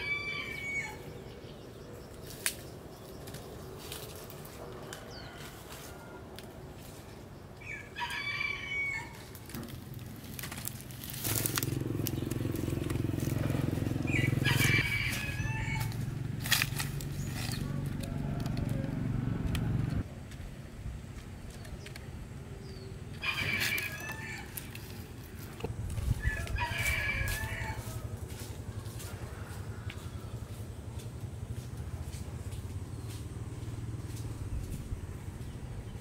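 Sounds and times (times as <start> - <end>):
rooster crowing: 0.0 - 1.2, 4.7 - 6.4, 7.6 - 9.4, 13.4 - 16.2, 17.5 - 19.8, 23.2 - 24.8, 26.1 - 30.8.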